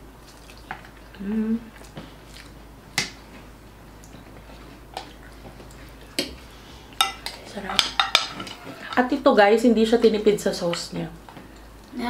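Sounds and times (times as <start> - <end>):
quiet chewing: 0.2 - 2.6, 3.3 - 7.3.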